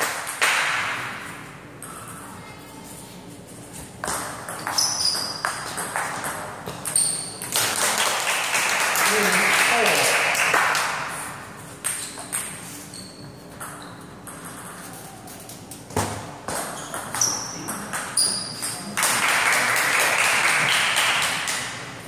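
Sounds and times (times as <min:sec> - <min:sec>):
crowd applause: 0:07.6 - 0:11.2, 0:19.0 - 0:21.7.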